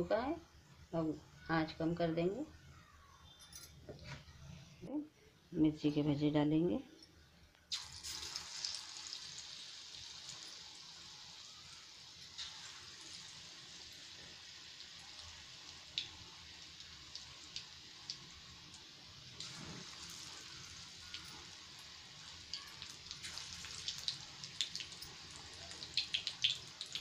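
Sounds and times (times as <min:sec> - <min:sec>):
oil popping and crackling: 0:07.7 - 0:14.1, 0:16.8 - 0:27.0
food sizzling in oil: 0:07.7 - 0:27.0.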